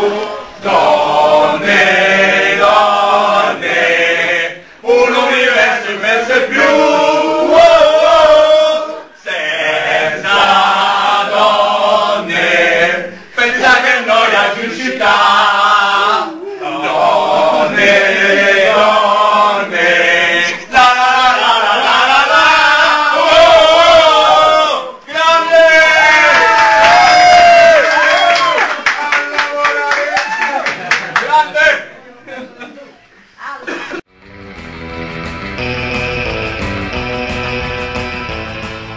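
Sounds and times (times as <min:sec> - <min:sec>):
crowd chanting in unison: 0:00.0 - 0:26.6.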